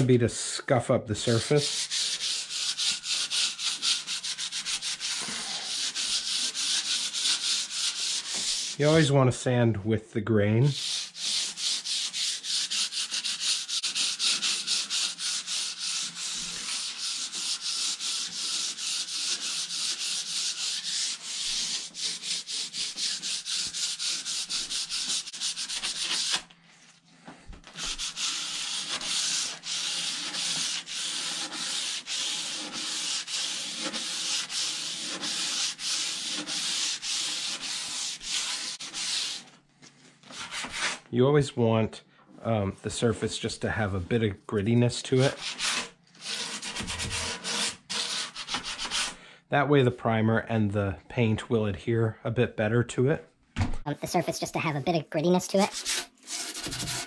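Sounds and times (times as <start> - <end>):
hand sanding wood: 1.2 - 9.2, 10.6 - 26.5, 27.3 - 39.5, 40.3 - 41.0, 44.6 - 49.2, 54.0 - 57.0.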